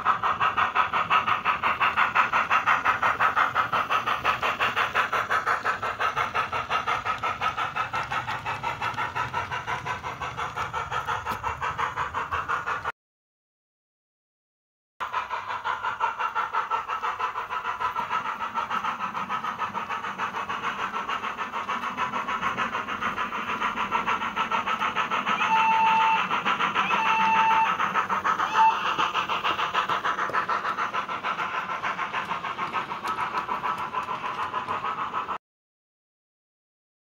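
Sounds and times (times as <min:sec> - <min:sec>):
steam locomotive exhaust chuffs: 0:00.0 - 0:12.9, 0:15.0 - 0:35.4
locomotive whistle: 0:25.2 - 0:29.1.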